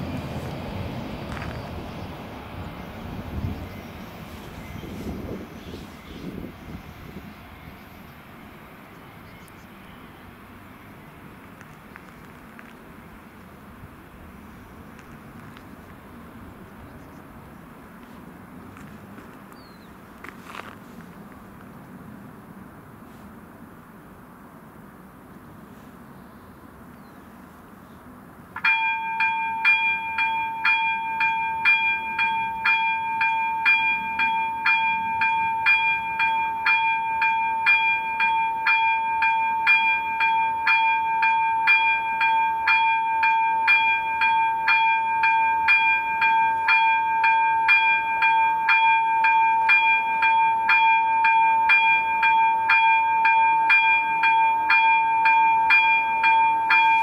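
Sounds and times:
level crossing bell ringing: 28.6s - 57.0s.

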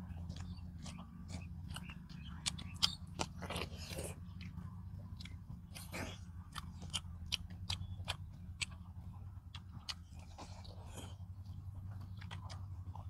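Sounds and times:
crunchy bites: 0.0s - 4.6s, 5.2s - 8.8s, 11.9s - 13.0s
steady low hum: 0.0s - 13.0s
wet chewing and lip smacks: 0.0s - 13.0s.

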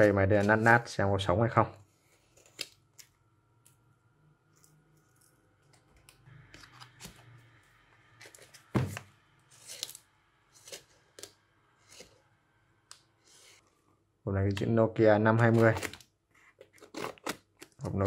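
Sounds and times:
packaging tearing and rustling: 15.4s - 18.0s.

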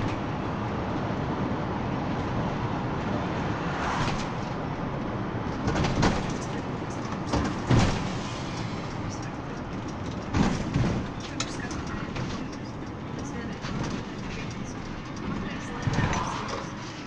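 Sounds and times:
minibus engine and road noise: 0.0s - 17.0s
sharp knocks and rattles: 5.5s - 16.5s.

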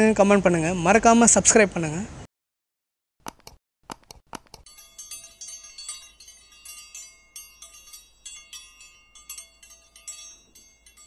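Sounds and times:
wind chimes tinkling: 4.6s - 11.0s.

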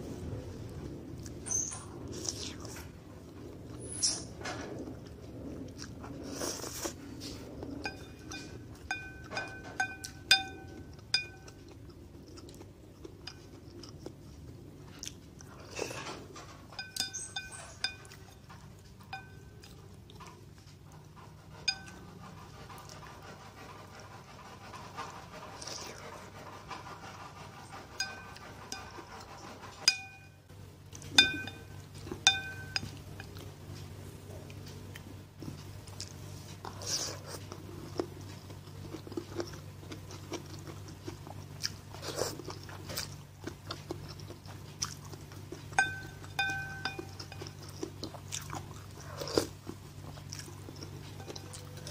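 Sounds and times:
spoon clinking ceramic bowl: 7.9s - 11.6s, 16.8s - 18.2s, 19.1s - 19.5s, 29.9s - 30.3s, 31.1s - 33.0s, 45.8s - 47.8s.

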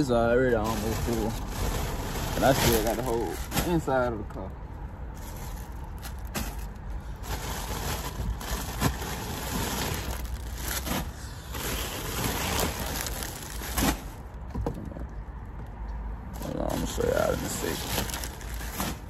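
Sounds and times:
plastic packages crinkling: 0.4s - 3.8s, 5.2s - 14.3s, 16.4s - 19.0s.

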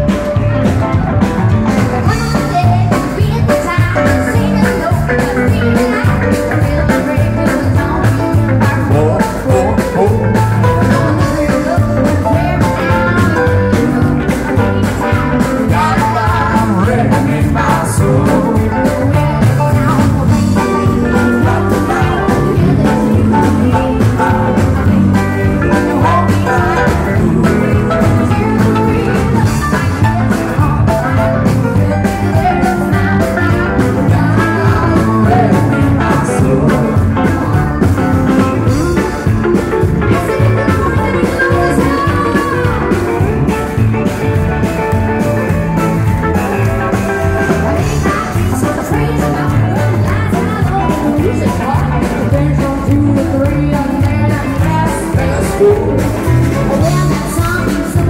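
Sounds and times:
live rock band playing: 0.0s - 58.0s
steady drum beat: 0.0s - 58.0s
woman singing: 1.9s - 43.8s, 47.4s - 58.0s.

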